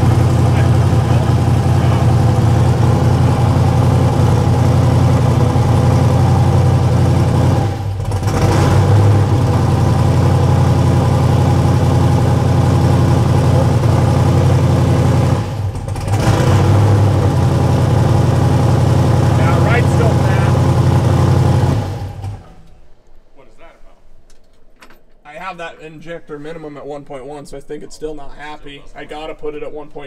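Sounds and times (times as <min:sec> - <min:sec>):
engine idling unevenly: 0:00.0 - 0:22.7.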